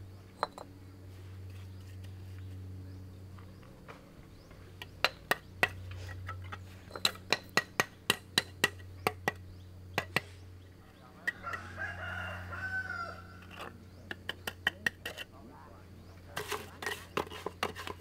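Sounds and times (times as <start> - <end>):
rooster crowing: 11.2 - 13.6.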